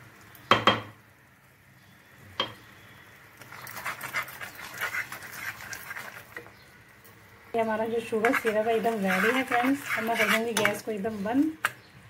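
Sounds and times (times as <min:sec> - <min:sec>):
boiling syrup bubbling and crackling: 0:02.9 - 0:11.6.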